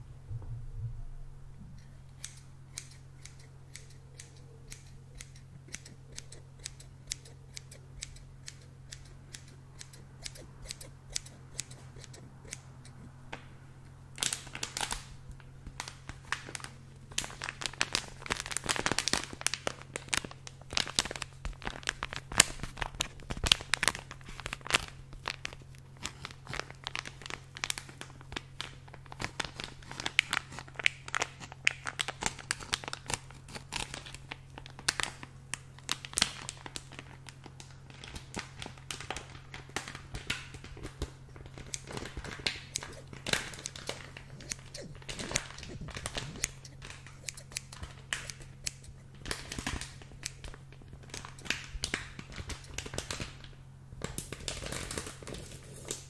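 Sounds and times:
scissors snipping: 0:02.1 - 0:13.1, 0:40.9 - 0:49.1
plastic bag crinkling: 0:14.2 - 0:56.0.

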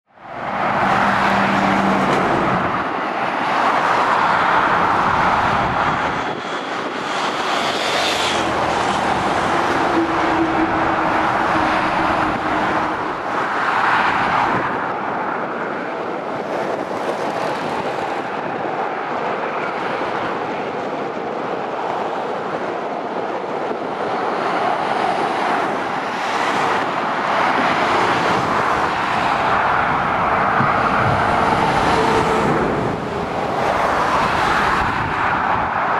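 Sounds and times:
road traffic passing: 0:00.0 - 0:35.9.

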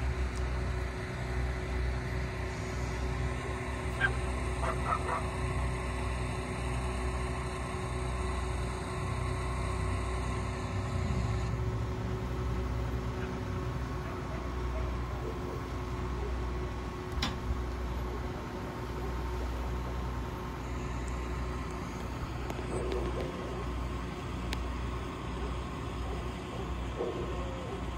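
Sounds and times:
crane engine humming: 0:00.0 - 0:27.9.

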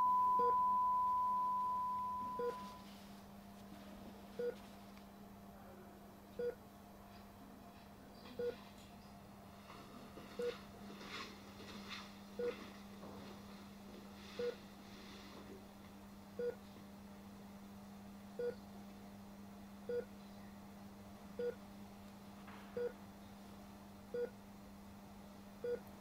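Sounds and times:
patient monitor beeping: 0:00.0 - 0:02.9, 0:04.4 - 0:04.6, 0:08.4 - 0:08.6, 0:10.4 - 0:10.6, 0:12.4 - 0:12.6, 0:14.4 - 0:14.6, 0:24.1 - 0:24.3
steady low hum: 0:00.0 - 0:26.0.

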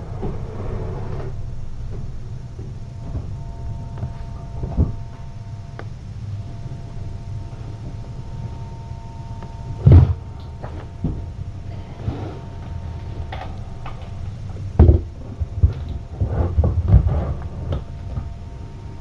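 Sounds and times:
steady low hum: 0:00.0 - 0:19.0
dull knocks and thumps: 0:14.8 - 0:18.3.

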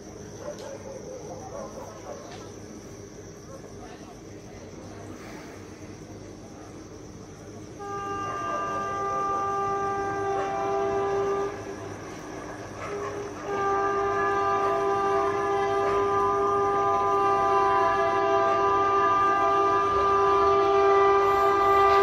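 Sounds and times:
train horn blasts: 0:07.7 - 0:22.0.

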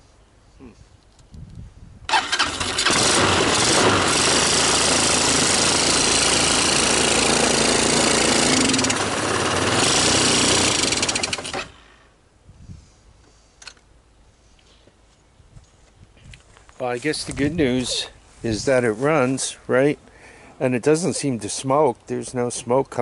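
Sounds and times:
atv engine running loudly: 0:02.6 - 0:11.7.

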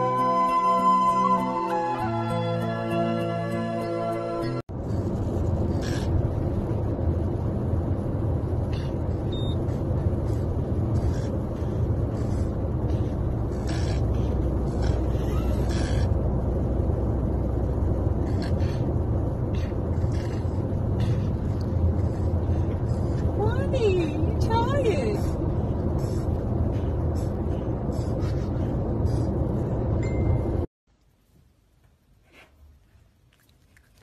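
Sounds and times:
car road noise rumble: 0:04.6 - 0:30.7.

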